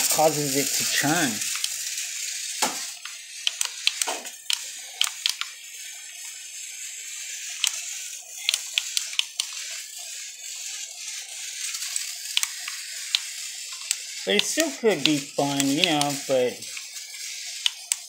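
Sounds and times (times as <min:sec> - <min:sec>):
toy motor whirring hiss: 0:00.0 - 0:18.0
plastic clicks and taps: 0:03.5 - 0:05.5.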